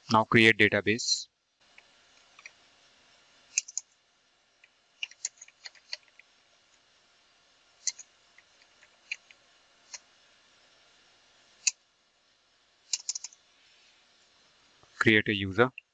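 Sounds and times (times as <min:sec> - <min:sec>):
keyboard keys clicking: 0:05.0 - 0:06.1, 0:13.0 - 0:13.4.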